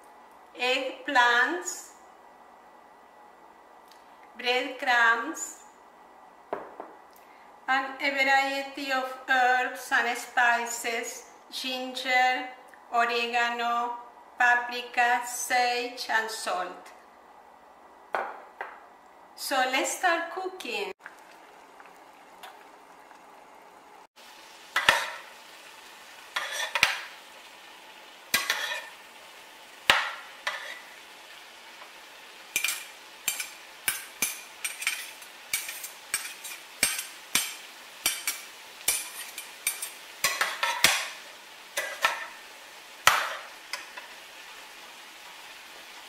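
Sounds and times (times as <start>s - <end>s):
vegetables sizzling in a pan: 7.8s - 13.9s, 19.4s - 46.0s
metal spoons clinking and scraping pan: 26.4s - 27.0s, 28.4s - 29.0s, 30.1s - 30.9s, 32.5s - 41.2s, 41.8s - 42.4s.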